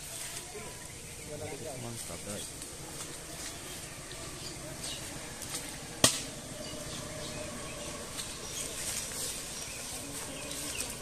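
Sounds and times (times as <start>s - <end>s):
rural outdoor background: 0.0s - 11.0s
small birds chirping: 0.0s - 11.0s.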